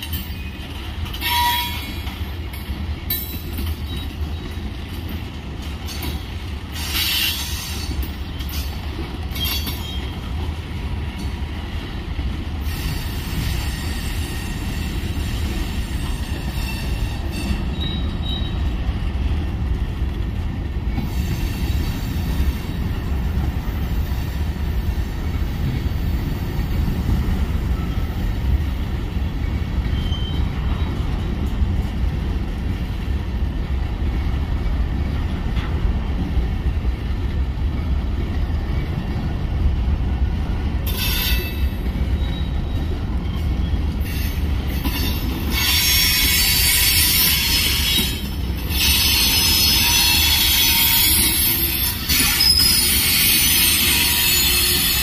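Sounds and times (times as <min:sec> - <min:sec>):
train wheels rumbling on rail: 0:00.0 - 0:55.0
wheel squeals: 0:12.7 - 0:18.7, 0:29.8 - 0:31.0, 0:40.9 - 0:55.0.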